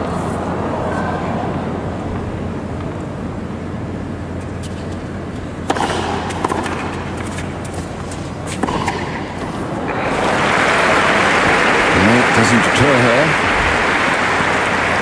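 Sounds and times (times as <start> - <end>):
arena background noise: 0.0 - 15.0
tennis ball struck by rackets: 5.6 - 9.6.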